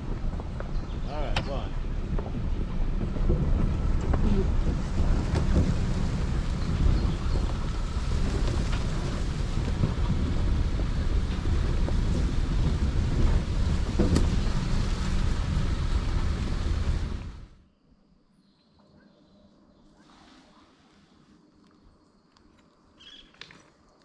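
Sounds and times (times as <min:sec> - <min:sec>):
truck driving on dirt track: 0:00.0 - 0:17.6
wind buffeting microphone: 0:00.0 - 0:17.6.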